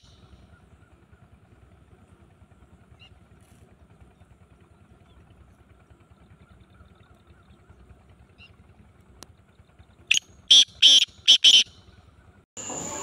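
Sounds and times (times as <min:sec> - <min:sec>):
bird harsh high calls: 0:00.0 - 0:01.0, 0:10.1 - 0:13.0.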